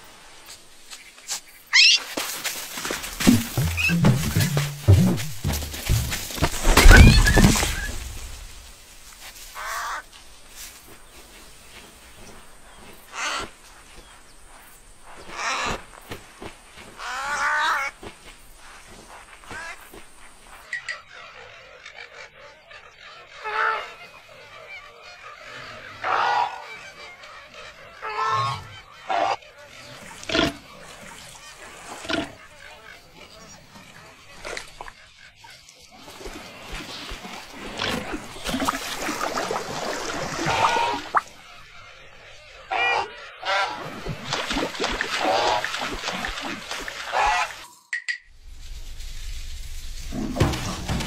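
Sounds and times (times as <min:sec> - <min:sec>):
flamingos honking: 0:03.2 - 0:08.0, 0:37.6 - 0:44.0, 0:45.1 - 0:47.8
heavy thump: 0:03.2 - 0:08.2.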